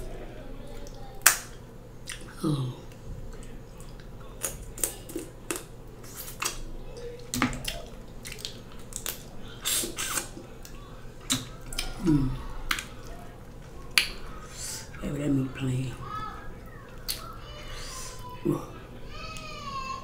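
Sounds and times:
lips smacking and sucking: 7.6 - 12.0.

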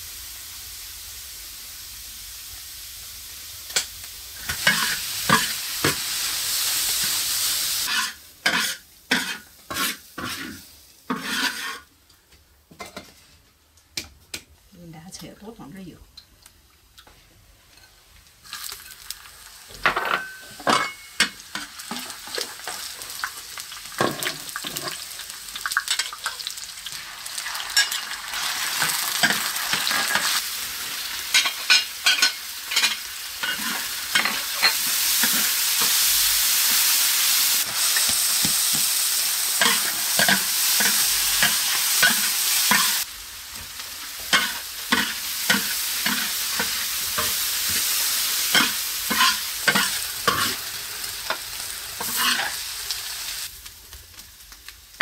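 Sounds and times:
vegetables sizzling in a wok: 0.0 - 13.6, 16.8 - 55.0
metal spatula scraping a pan: 7.8 - 11.9, 31.3 - 36.0, 44.2 - 47.9, 48.5 - 50.6, 52.0 - 52.6.

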